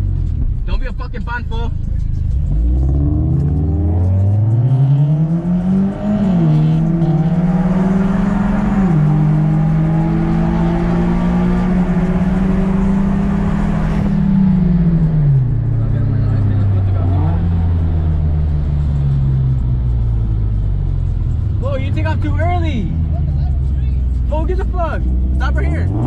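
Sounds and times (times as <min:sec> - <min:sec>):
car engine accelerating: 0:00.0 - 0:26.0.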